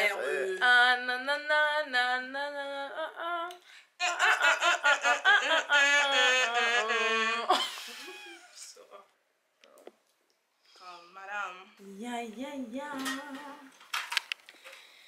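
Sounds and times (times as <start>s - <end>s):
woman singing wordless melody: 0.0s - 3.6s, 11.6s - 13.8s.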